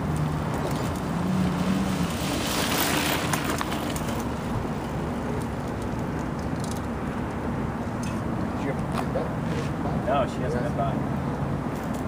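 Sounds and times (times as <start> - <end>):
bike tyres rushing over dirt: 0.0 - 6.1.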